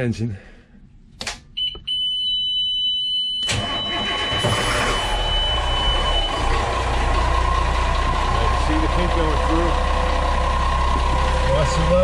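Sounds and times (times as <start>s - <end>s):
diesel engine starting and idling: 3.4s - 12.0s.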